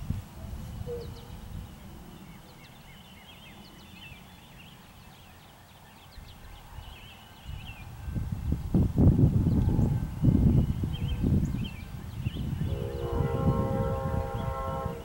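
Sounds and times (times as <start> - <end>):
small birds chirping: 0.4 - 8.8, 9.4 - 13.1
low uneven rumble: 7.9 - 15.0.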